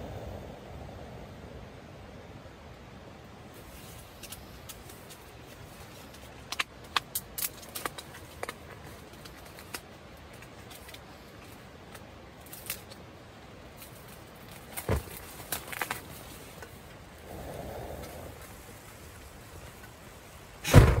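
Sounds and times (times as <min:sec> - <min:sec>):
foil tray ticking and crackling: 0:03.7 - 0:17.1
gas stove hiss: 0:08.7 - 0:21.0.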